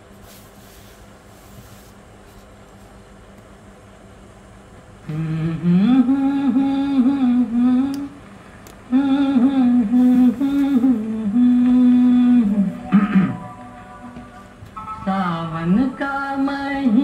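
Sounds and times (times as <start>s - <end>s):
person humming long notes: 5.1s - 8.1s, 8.9s - 14.6s.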